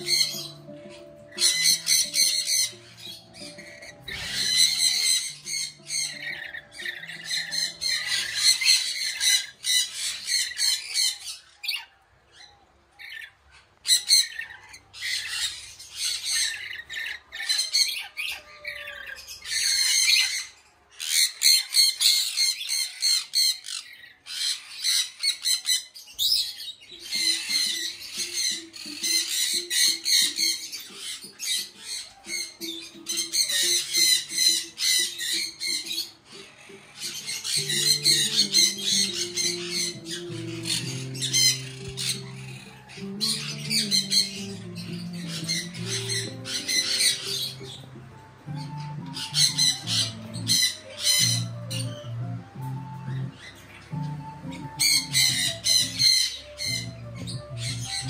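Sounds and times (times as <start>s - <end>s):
parrots squawking: 0.0s - 58.0s
soft background music: 0.0s - 58.0s.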